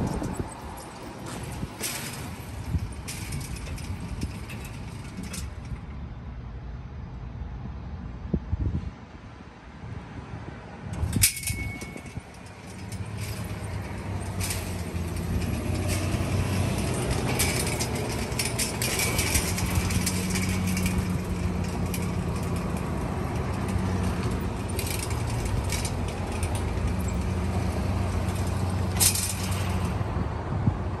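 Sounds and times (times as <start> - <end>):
gate hardware rattling and clicking: 0.0 - 6.0, 11.0 - 30.0
sharp metal clank: 11.0 - 29.9.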